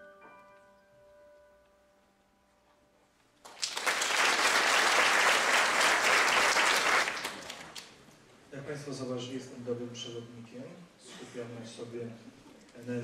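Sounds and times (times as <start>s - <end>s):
audience applauding: 3.4s - 8.0s.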